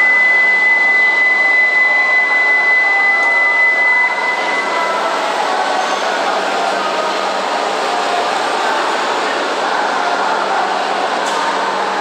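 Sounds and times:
high electronic warning tone: 0:00.0 - 0:05.4.

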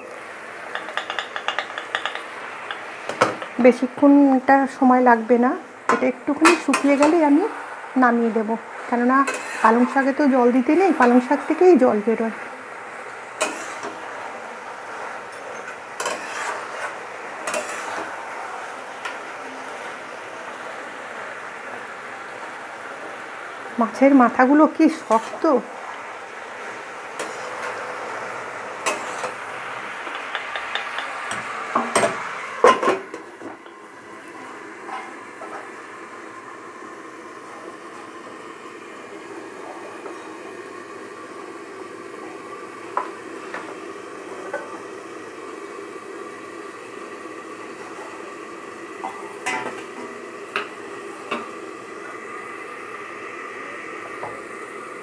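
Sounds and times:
food sizzling: 0:00.0 - 0:55.0
pan simmering with hiss: 0:00.0 - 0:55.0
spatula scraping a pan: 0:09.2 - 0:10.0, 0:13.4 - 0:14.0, 0:15.4 - 0:18.2, 0:24.9 - 0:25.5, 0:27.2 - 0:27.7, 0:28.8 - 0:29.4.

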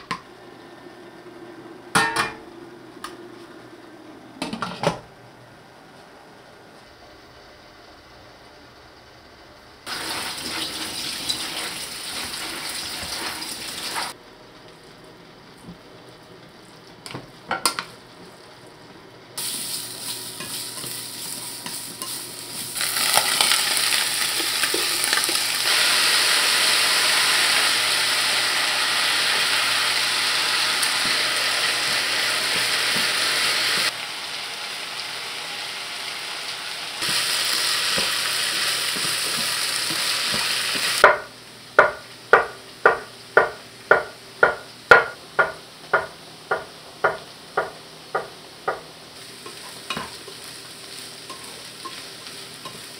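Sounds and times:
potatoes sizzling in oil: 0:09.8 - 0:14.2, 0:19.4 - 0:41.2, 0:47.2 - 0:52.9.

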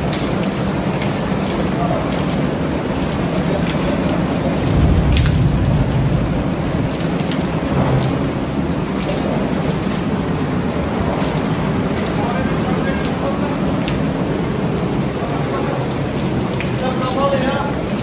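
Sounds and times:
heavy rain on glass: 0:00.0 - 0:18.0
low rumble: 0:04.6 - 0:07.0.

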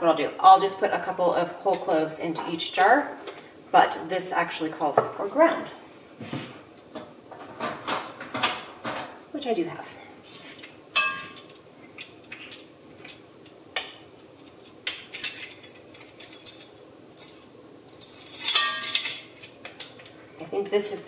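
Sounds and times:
metal spoon clinking on glass and metal: 0:10.6 - 0:13.6, 0:14.6 - 0:20.2, 0:20.8 - 0:21.0.

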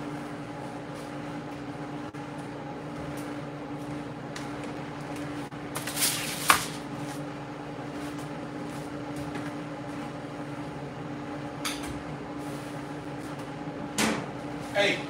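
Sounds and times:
steady hum: 0:00.0 - 0:15.0
aluminium foil rustling: 0:05.7 - 0:07.1.

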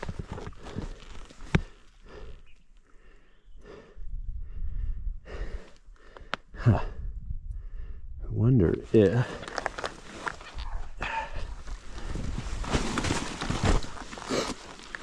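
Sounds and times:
person breathing hard: 0:00.6 - 0:08.2.

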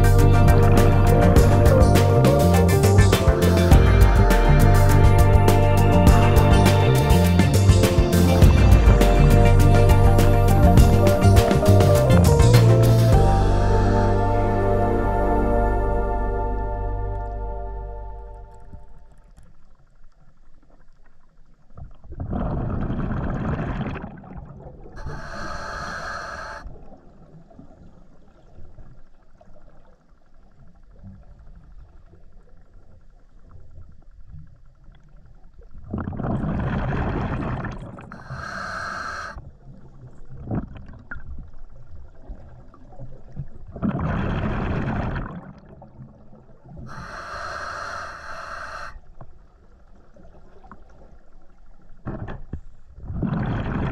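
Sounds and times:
exhaled bubbles underwater: 0:21.8 - 0:30.0, 0:34.2 - 0:49.1, 0:53.0 - 0:53.9
regulator hiss on inhale: 0:25.0 - 0:26.6, 0:38.2 - 0:39.4, 0:46.9 - 0:49.0.

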